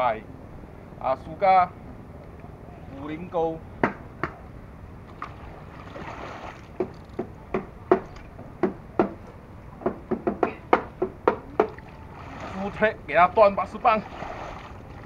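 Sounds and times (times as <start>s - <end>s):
faint water wash: 5.1s - 7.2s, 11.6s - 15.0s
sharp knocks and taps: 6.8s - 11.8s.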